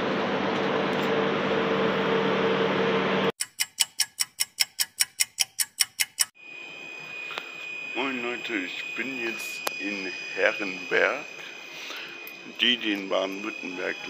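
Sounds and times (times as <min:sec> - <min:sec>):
ticking sound effect: 0:03.4 - 0:06.4
thin high tone: 0:06.2 - 0:14.0.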